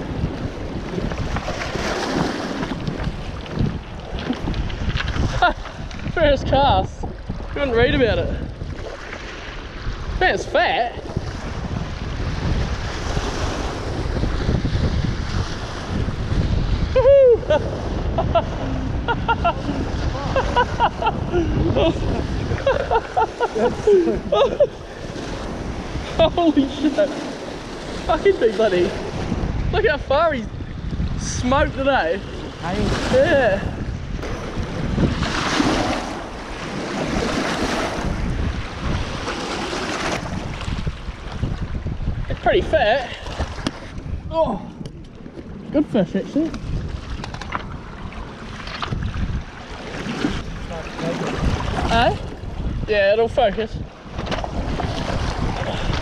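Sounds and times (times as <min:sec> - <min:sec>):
wind buffeting microphone: 0:00.0 - 0:56.0
water splashing against rocky bank: 0:00.8 - 0:06.1.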